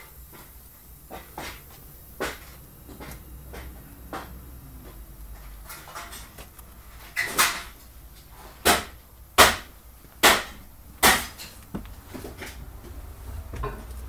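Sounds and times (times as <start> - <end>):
footsteps going down stairs: 0.0 - 6.5, 9.6 - 14.0.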